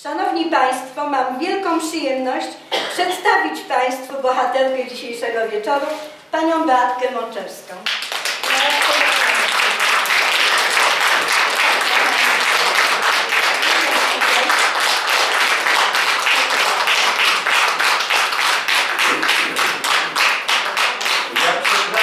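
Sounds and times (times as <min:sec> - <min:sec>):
audience applauding: 0:07.9 - 0:22.0.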